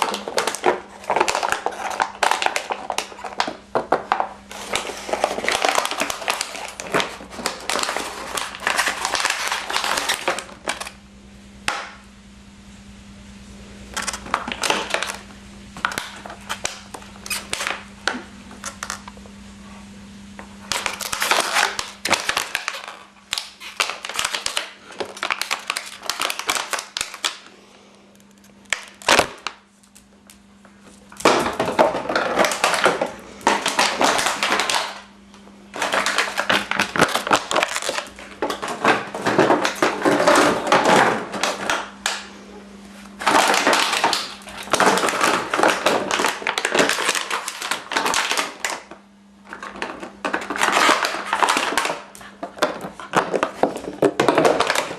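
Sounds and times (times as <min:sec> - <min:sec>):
dog chewing plastic bottle: 0:00.0 - 0:10.8, 0:14.0 - 0:15.2, 0:20.7 - 0:27.4, 0:31.2 - 0:35.1, 0:35.7 - 0:42.2, 0:43.2 - 0:48.9, 0:49.5 - 0:54.9.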